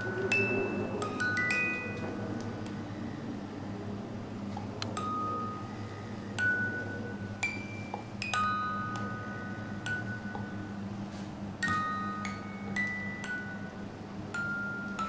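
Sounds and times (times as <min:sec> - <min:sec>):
chime notes ringing: 0:00.0 - 0:02.8
low steady hum: 0:00.0 - 0:15.0.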